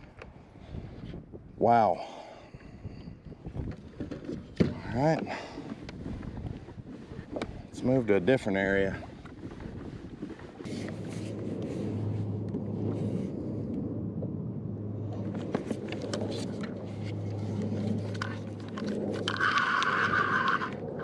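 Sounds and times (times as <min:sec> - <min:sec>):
wind rumbling on microphone: 0:00.0 - 0:21.0
water slapping a kayak: 0:03.5 - 0:12.2, 0:15.2 - 0:21.0
fishing reel drag screaming: 0:19.2 - 0:20.8.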